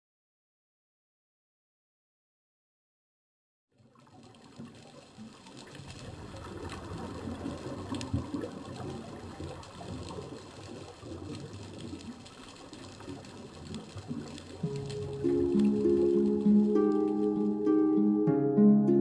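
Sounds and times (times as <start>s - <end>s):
muffled underwater hiss: 3.8s - 18.0s.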